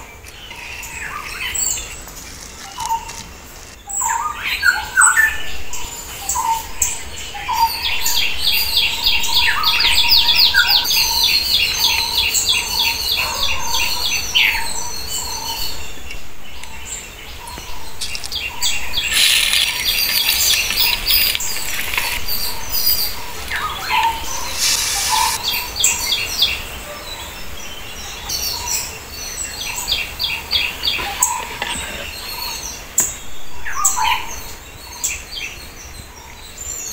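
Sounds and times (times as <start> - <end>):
birds chirping: 0.0 - 36.9
hot oil sizzling in a pot: 24.5 - 25.4.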